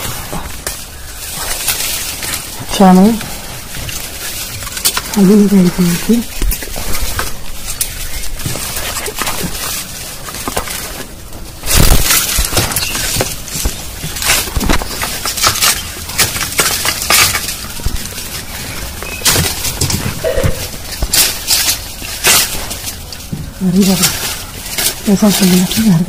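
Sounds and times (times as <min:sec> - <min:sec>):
leaves and twigs rustling: 0:00.0 - 0:26.0
pole knocking through branches: 0:06.3 - 0:25.8.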